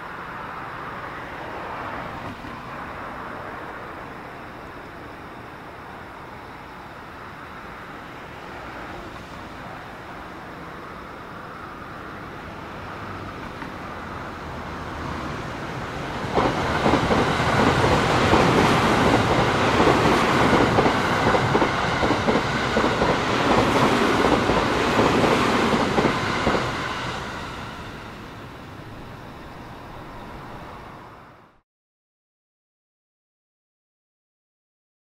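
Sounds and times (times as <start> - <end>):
electric train passing: 0.0 - 31.6.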